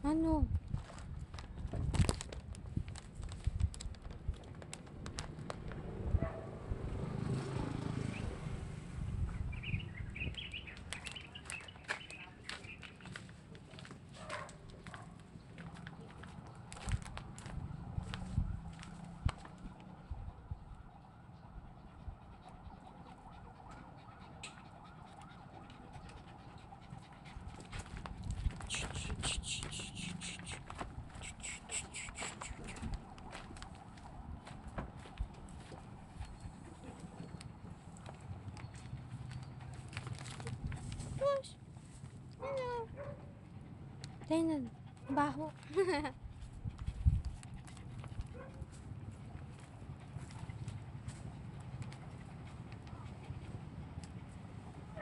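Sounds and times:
bird chirps: 9.5s - 13.1s
footsteps on gravel and grass: 10.6s - 18.9s
small dog panting: 19.5s - 33.5s, 35.3s - 41.4s, 42.4s - 55.0s.

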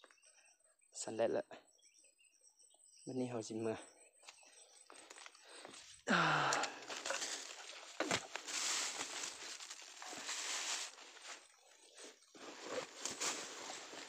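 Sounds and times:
rustling of grass and undergrowth: 5.0s - 14.0s.

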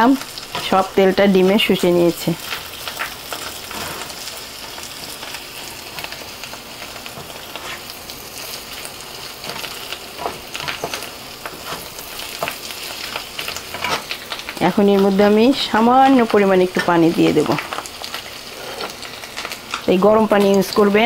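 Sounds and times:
fish roe sizzling in oil: 0.0s - 21.0s
wooden spatula scraping pan: 3.6s - 4.2s, 9.4s - 12.6s, 18.5s - 19.0s.

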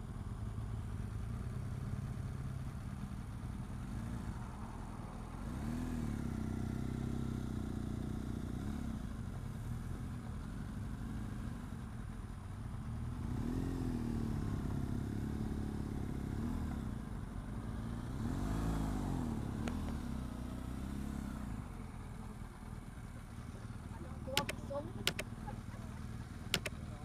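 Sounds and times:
motorcycle engine running: 0.0s - 27.0s
sharp click: 24.4s - 25.2s, 26.6s - 26.8s.

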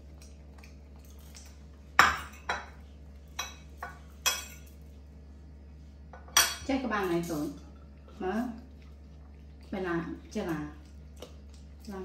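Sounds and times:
metal clinking on dishes: 3.4s - 4.8s.

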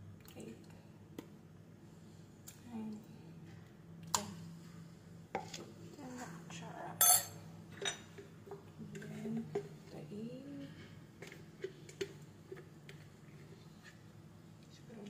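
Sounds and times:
kitchenware clinking: 7.0s - 8.2s.

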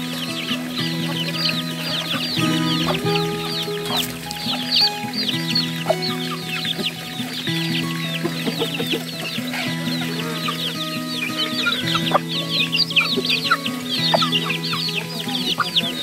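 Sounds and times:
background music with held notes: 0.0s - 16.0s
chicks peeping: 8.1s - 16.0s
hens clucking: 8.1s - 16.0s.

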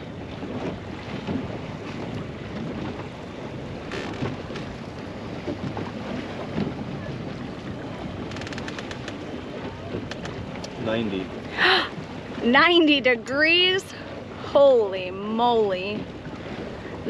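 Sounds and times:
choppy water: 0.0s - 17.0s
wind buffeting microphone: 0.0s - 17.0s
faint clicks: 8.3s - 9.2s, 10.0s - 10.8s.

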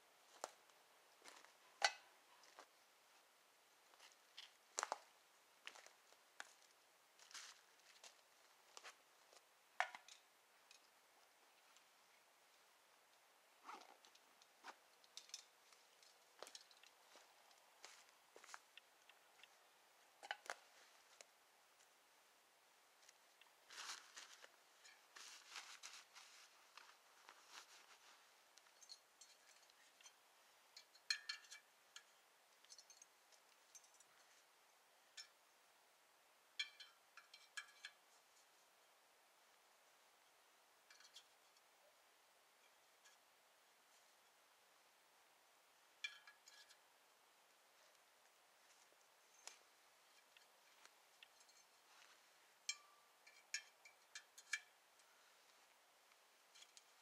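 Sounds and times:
light metal ticks: 28.6s - 34.3s, 36.6s - 38.0s, 52.6s - 55.1s
metal clicks and clinks: 28.6s - 34.4s, 36.6s - 38.0s, 52.6s - 55.1s.

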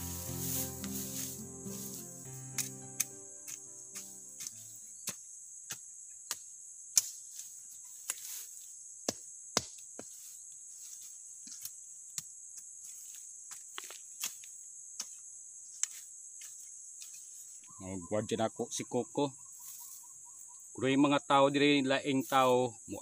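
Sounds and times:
metal tool striking soil: 0.0s - 8.3s
crickets trilling: 0.0s - 23.0s.

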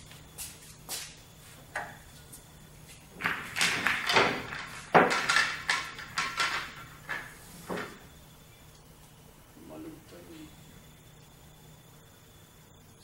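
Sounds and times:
pool balls clacking together: 3.1s - 8.1s.

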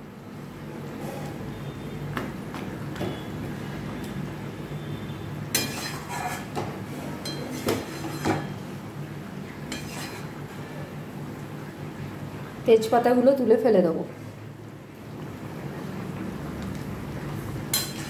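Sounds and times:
metal spatula scraping a pan: 5.5s - 8.6s, 9.7s - 10.4s, 17.7s - 18.0s.

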